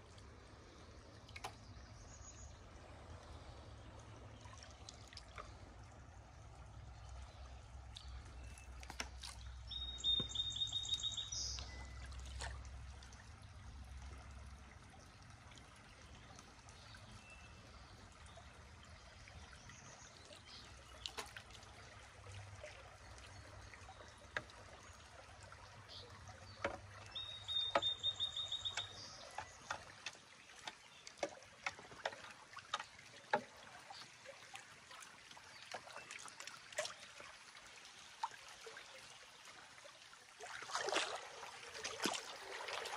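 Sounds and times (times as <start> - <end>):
creek water trickling: 0.0 - 42.9
light ticks and drips: 0.0 - 42.9
songbird trilling: 9.7 - 12.0, 27.1 - 29.7.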